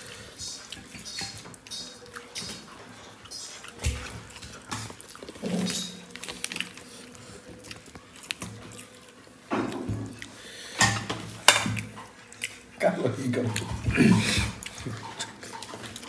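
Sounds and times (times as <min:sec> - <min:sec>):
chewing: 0:00.0 - 0:16.0
tableware clatter: 0:04.8 - 0:06.1.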